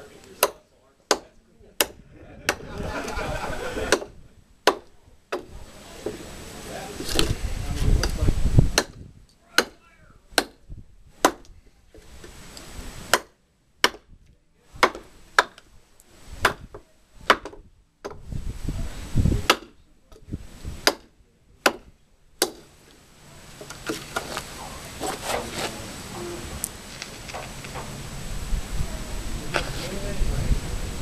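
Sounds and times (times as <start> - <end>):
knife chopping wood: 0.4 - 2.7, 3.9 - 4.1, 4.7 - 5.5, 8.7 - 9.0, 10.4 - 10.6, 11.2 - 11.5, 13.1 - 14.1, 14.8 - 15.6, 16.4 - 18.2, 19.4 - 19.8, 20.8 - 22.7
wood knocking and rustling: 7.0 - 8.2, 19.5 - 28.0.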